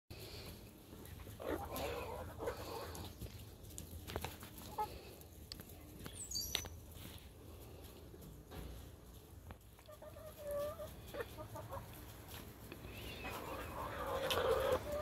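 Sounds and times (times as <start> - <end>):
hens pecking: 0.1 - 15.0
quiet chicken call: 1.4 - 3.2, 9.8 - 12.0, 12.7 - 15.0.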